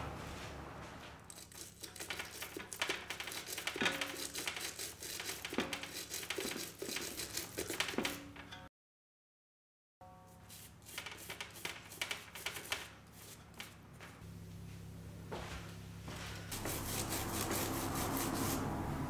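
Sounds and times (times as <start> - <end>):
wire brush scrubbing wood: 1.2 - 8.2, 10.5 - 13.8, 16.5 - 19.0.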